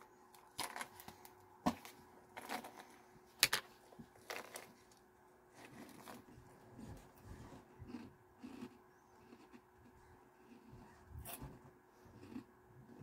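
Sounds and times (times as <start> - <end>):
snacks rattling in a canister: 0.4 - 3.6, 4.2 - 5.0.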